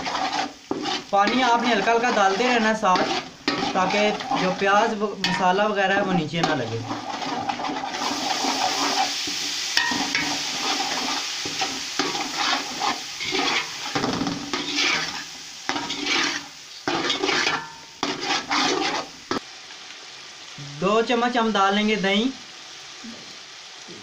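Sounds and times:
spatula scraping metal pot: 0:00.0 - 0:19.2
masala sizzling in oil: 0:00.0 - 0:24.0.

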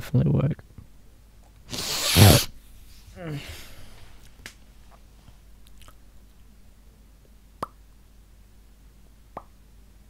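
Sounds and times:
faint low hum: 0:02.5 - 0:10.0.

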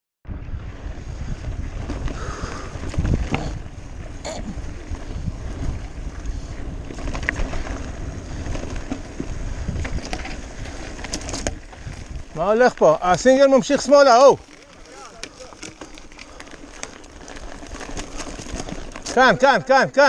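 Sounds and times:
wind rushing over microphone: 0:00.3 - 0:14.5
bike rattling over stones: 0:00.5 - 0:20.0.

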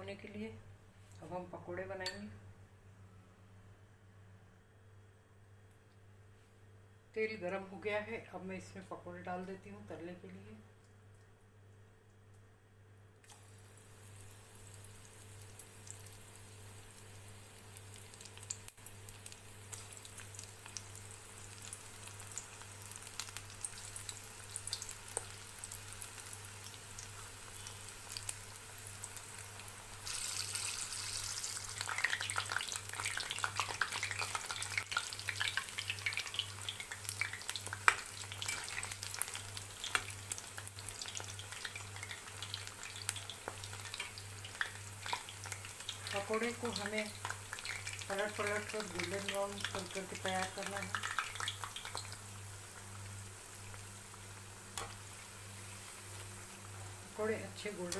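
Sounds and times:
food deep-frying in hot oil: 0:13.2 - 0:57.9.

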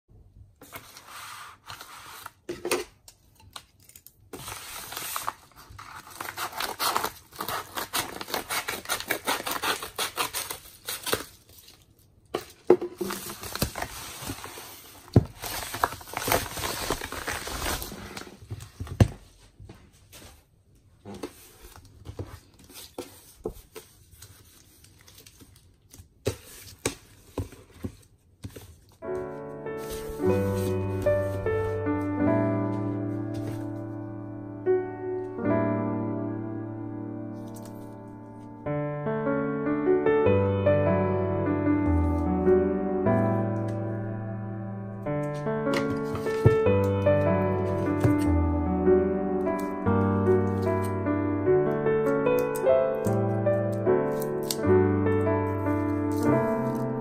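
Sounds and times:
packages rustling and tapping: 0:01.6 - 0:20.5, 0:21.1 - 0:29.0, 0:45.2 - 0:47.0, 0:47.6 - 0:48.3, 0:55.5 - 0:57.0
paper mailer tearing: 0:03.8 - 0:11.8, 0:55.6 - 0:57.0.

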